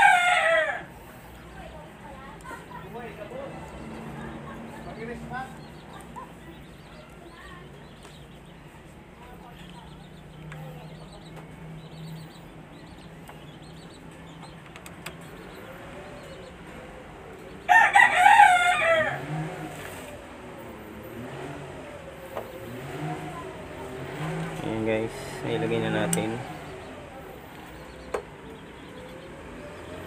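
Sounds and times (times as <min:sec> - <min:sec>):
rooster crowing: 0:00.0 - 0:00.9, 0:17.7 - 0:19.5.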